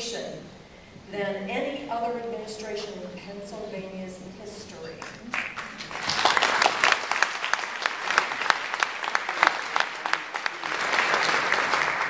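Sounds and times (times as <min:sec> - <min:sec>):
audience clapping: 0:05.0 - 0:12.0.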